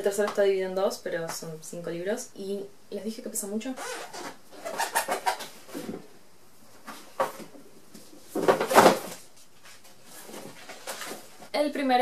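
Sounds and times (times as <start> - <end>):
books scraping against cardboard: 8.4 - 11.5.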